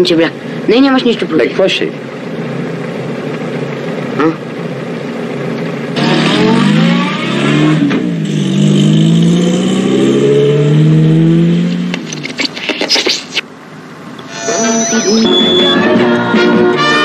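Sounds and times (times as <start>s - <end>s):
car engine accelerating: 5.9s - 12.3s.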